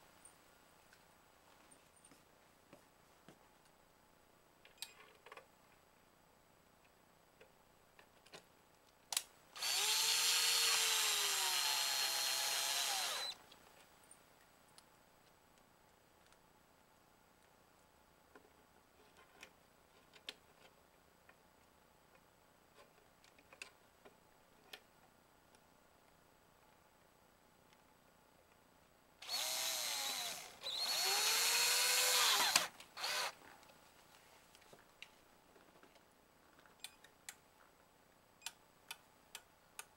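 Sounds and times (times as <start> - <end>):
cordless drill motor: 9.6 - 13.4, 29.2 - 33.4.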